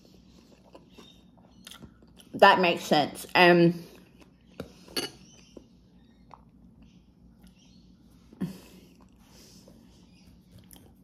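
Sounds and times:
chewing and mouth clicks: 0:00.1 - 0:02.4, 0:04.0 - 0:07.6, 0:08.9 - 0:09.3, 0:10.5 - 0:11.0.

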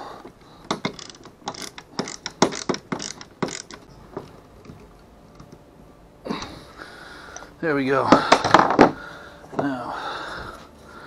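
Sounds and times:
ratcheting clicks: 0:00.3 - 0:05.6.

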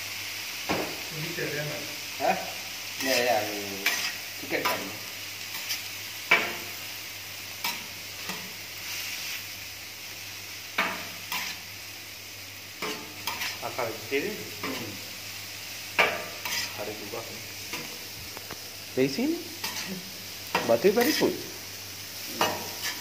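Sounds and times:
food sizzling: 0:00.0 - 0:23.0
metal spatulas scraping griddle: 0:03.0 - 0:04.8, 0:05.5 - 0:06.7, 0:10.8 - 0:11.6, 0:12.8 - 0:13.7, 0:16.0 - 0:16.9, 0:19.6 - 0:21.4, 0:22.3 - 0:23.0
metal clacks on griddle: 0:05.5 - 0:06.7, 0:10.8 - 0:11.6, 0:16.0 - 0:16.7.

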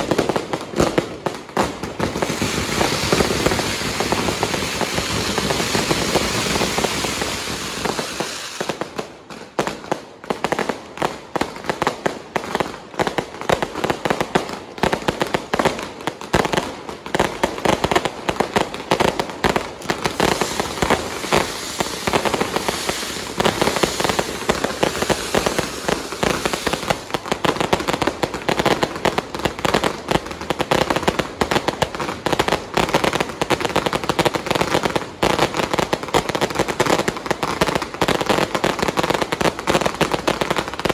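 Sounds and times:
fireworks hissing rush: 0:00.0 - 0:09.4, 0:18.1 - 0:40.9
fireworks crackling and banging: 0:00.0 - 0:40.9.

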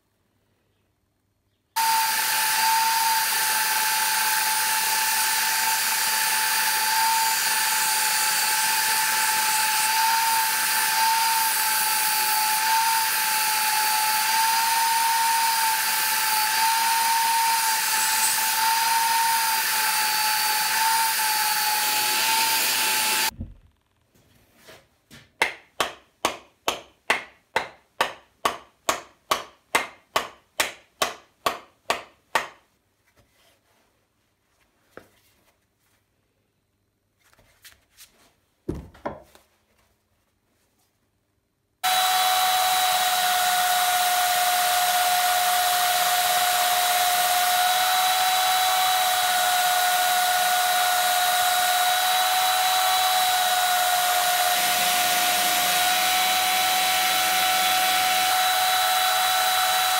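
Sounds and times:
belt sander whining: 0:01.8 - 0:23.6, 0:41.8 - 0:59.9.

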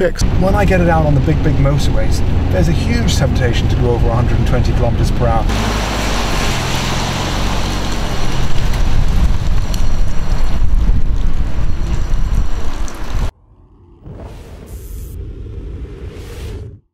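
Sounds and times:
car engine driving away: 0:00.2 - 0:16.3
wind buffeting on microphone: 0:08.1 - 0:13.3.

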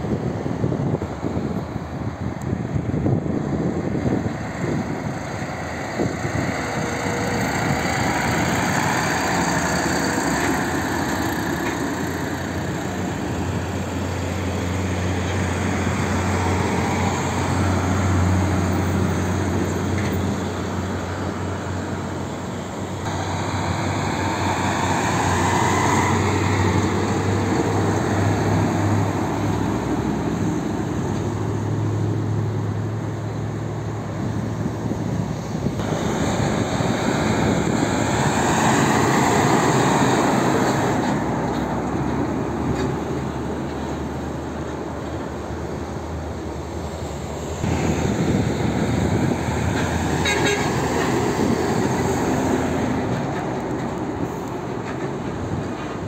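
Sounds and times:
diesel truck engine drone: 0:00.0 - 0:56.0
tyre and traffic noise: 0:00.0 - 0:56.0.

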